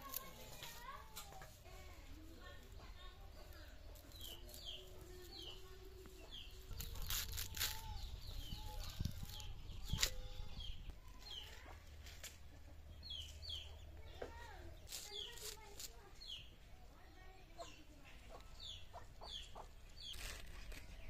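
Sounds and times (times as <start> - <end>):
chickens clucking: 2.6 - 14.2, 17.5 - 21.0
spinach stems snapping on a blade: 6.7 - 8.4, 9.3 - 10.2.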